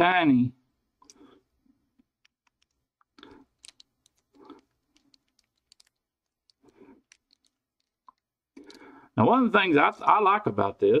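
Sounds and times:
tiny metal parts clicking: 0:02.2 - 0:08.8.

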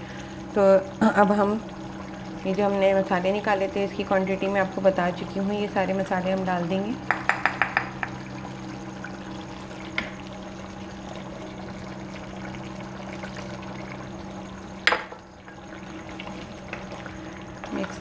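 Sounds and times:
curry simmering in pan: 0:00.0 - 0:18.0
steady low hum: 0:00.0 - 0:18.0
light taps on glass bowl: 0:07.1 - 0:08.2.

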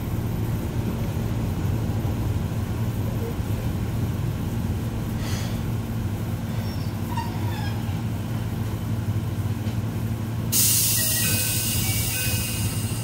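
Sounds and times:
low hum inside tram car: 0:00.0 - 0:13.0
pneumatic doors hissing open: 0:10.5 - 0:13.0.

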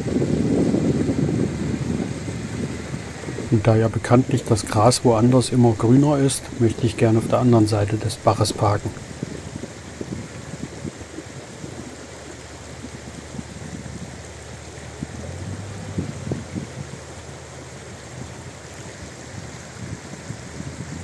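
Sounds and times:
stream babbling over stones: 0:00.0 - 0:21.0
truck diesel engine running: 0:12.6 - 0:19.7.

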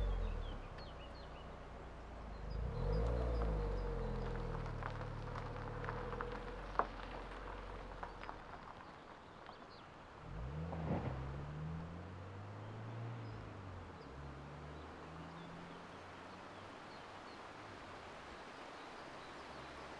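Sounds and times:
minivan engine accelerating: 0:00.0 - 0:08.9, 0:09.7 - 0:18.2
vehicle engine: 0:00.0 - 0:18.3.

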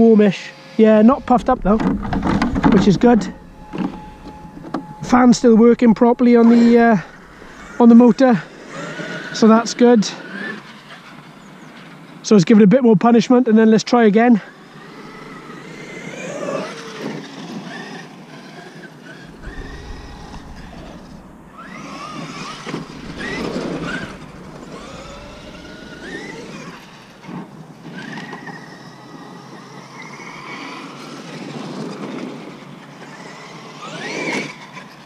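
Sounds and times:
electric motor whining: 0:00.6 - 0:09.4, 0:14.6 - 0:29.7
low rumble: 0:00.8 - 0:09.5, 0:14.6 - 0:17.0, 0:19.2 - 0:27.6
tyre and drivetrain noise: 0:01.1 - 0:09.6, 0:14.5 - 0:33.0.

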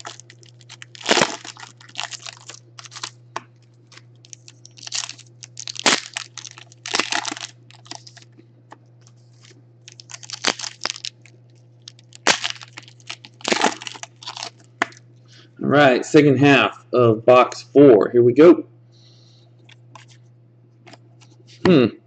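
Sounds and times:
foil wrapper crinkling and tearing: 0:00.0 - 0:08.3, 0:09.0 - 0:15.0.

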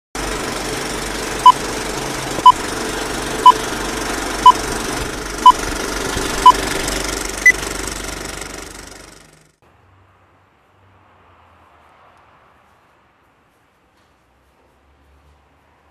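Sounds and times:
steady mechanical noise: 0:00.2 - 0:09.6.

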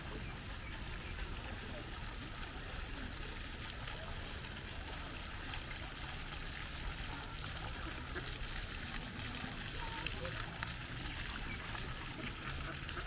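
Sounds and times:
fountain jets splashing into pool: 0:00.0 - 0:13.0.

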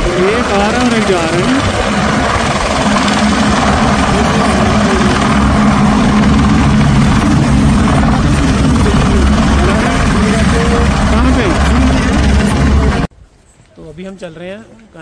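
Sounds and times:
helicopter turbine and rotor drone: 0:00.0 - 0:13.1.

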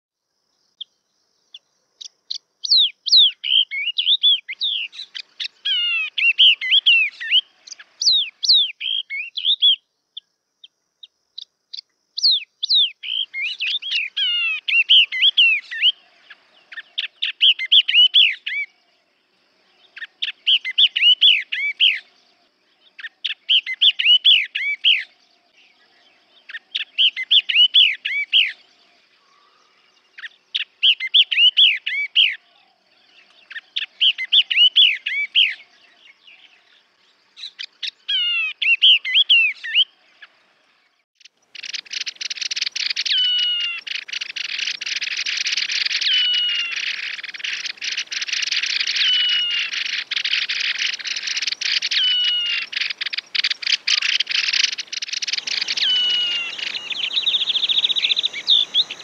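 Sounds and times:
bird song warbled phrases: 0:00.4 - 0:59.0
scratchy bird chatter: 0:41.2 - 0:59.0
falling whistle: 0:55.4 - 0:59.0.

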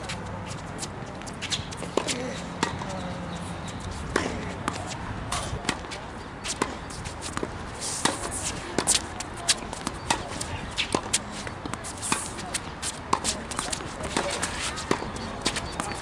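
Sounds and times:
racket striking tennis ball: 0:01.4 - 0:03.0, 0:03.7 - 0:16.0
ball bouncing on court: 0:05.6 - 0:16.0.

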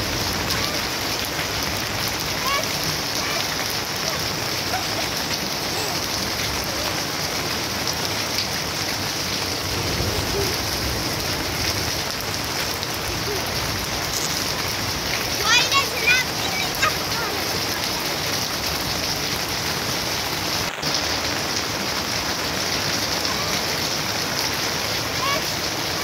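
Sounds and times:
steady rain falling: 0:00.0 - 0:26.0.

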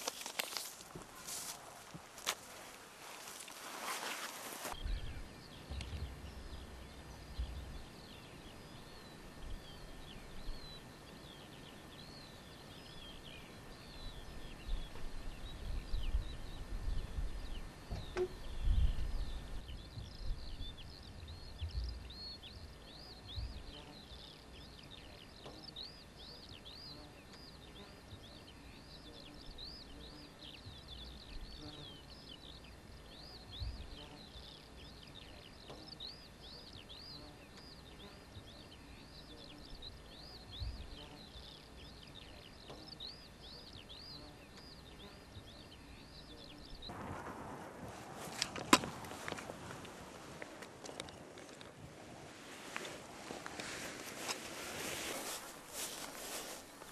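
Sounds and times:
small birds chirping: 0:00.0 - 0:47.1, 0:48.2 - 0:56.9
wind rumble on microphone: 0:04.7 - 0:10.8, 0:13.9 - 0:23.8, 0:40.5 - 0:41.0, 0:46.6 - 0:56.9.

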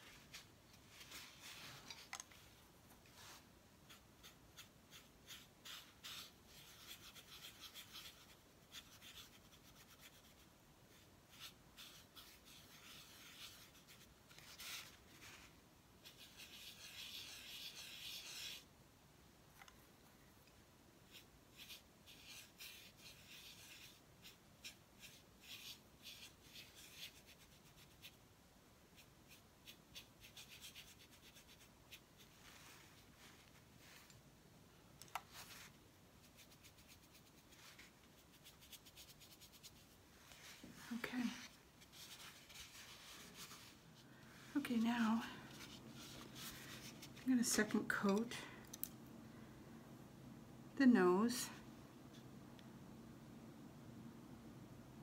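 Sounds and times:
soft brush rubbing on gourd: 0:00.0 - 0:18.7, 0:21.0 - 0:28.2, 0:29.0 - 0:34.2, 0:35.2 - 0:48.1.

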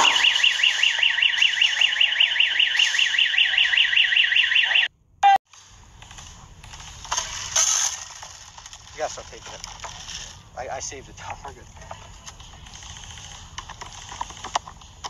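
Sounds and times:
electronic alarm warbling: 0:00.0 - 0:05.4.

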